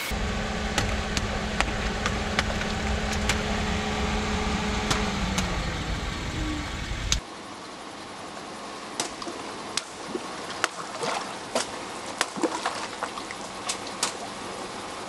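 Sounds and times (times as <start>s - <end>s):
water splashing: 9.0s - 15.0s.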